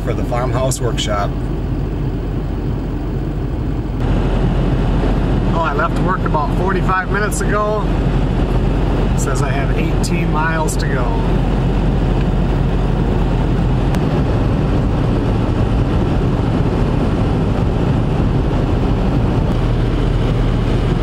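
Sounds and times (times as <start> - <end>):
truck engine hum: 0.0 - 21.0.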